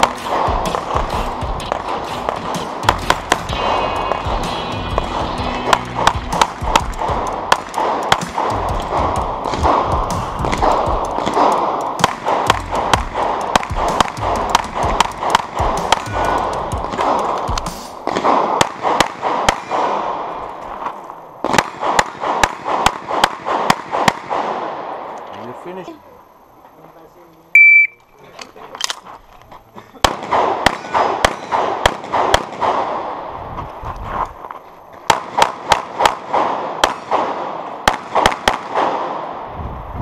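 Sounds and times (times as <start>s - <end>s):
rapid pistol fire: 0.0s - 4.4s, 5.7s - 20.3s, 21.5s - 25.0s, 30.0s - 33.2s, 35.1s - 39.4s
music: 0.0s - 18.0s.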